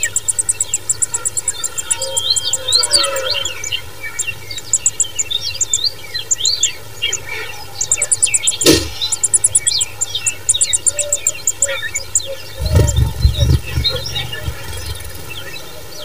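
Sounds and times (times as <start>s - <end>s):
bird chicks begging cheeps: 0.0s - 15.9s
sharp click: 8.5s - 9.8s.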